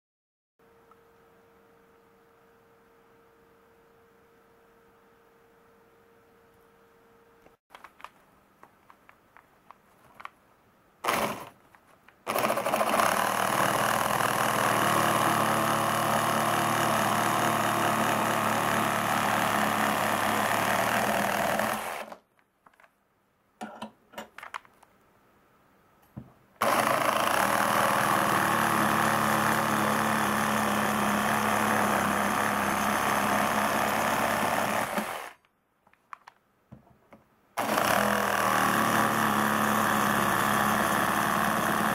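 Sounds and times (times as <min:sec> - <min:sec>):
reciprocating saw cutting wood: 0:11.0 - 0:11.6, 0:12.2 - 0:22.2, 0:26.6 - 0:35.4, 0:37.6 - 0:41.9
small knocks: 0:35.8 - 0:37.3.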